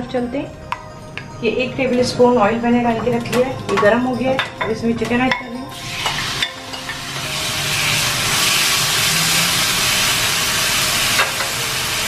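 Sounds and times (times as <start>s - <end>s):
chicken sizzling in hot oil: 5.7s - 12.0s.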